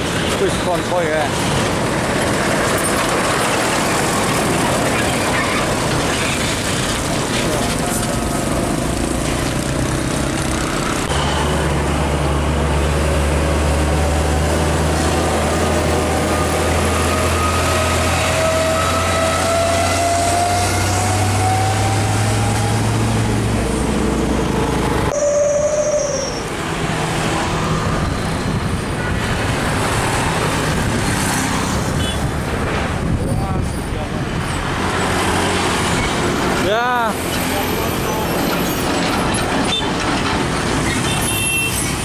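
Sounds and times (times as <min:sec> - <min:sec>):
diesel trucks passing: 0:00.0 - 0:42.0
passing traffic: 0:00.0 - 0:42.0
rising whine: 0:13.5 - 0:28.7.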